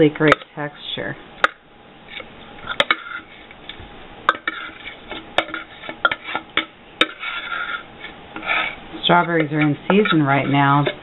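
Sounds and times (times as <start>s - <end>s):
utensil scraping plastic bowl: 4.3s - 11.0s.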